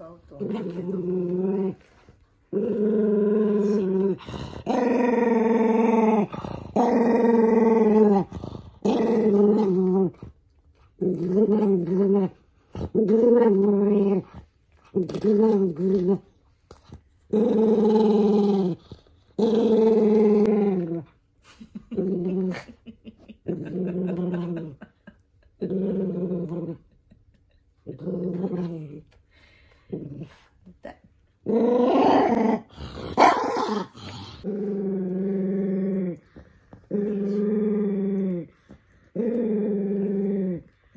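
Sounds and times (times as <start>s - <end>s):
dog growling: 0.3s - 10.3s, 25.6s - 27.0s, 31.4s - 40.9s.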